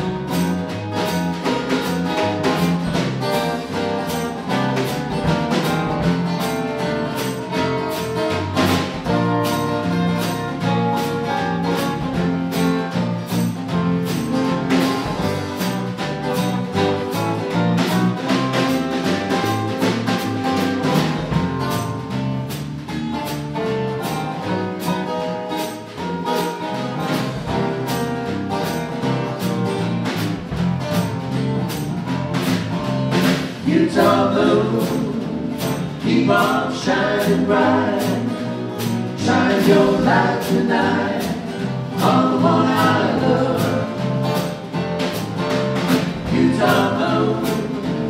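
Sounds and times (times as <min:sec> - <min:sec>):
band playing instrumental: 0:00.0 - 0:48.0
drum kit steady beat: 0:00.0 - 0:48.0
guitar: 0:00.0 - 0:48.0.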